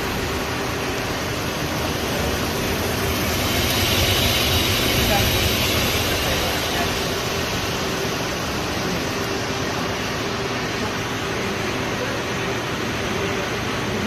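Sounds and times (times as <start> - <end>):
steady mid-pitched tone: 0.0 - 9.6
lathe humming and hissing: 0.0 - 14.0.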